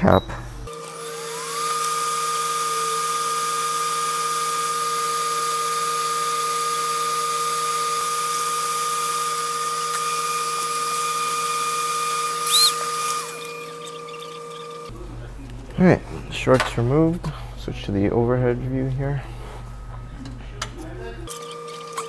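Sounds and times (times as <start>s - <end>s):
electric fan whining: 0.0s - 22.0s.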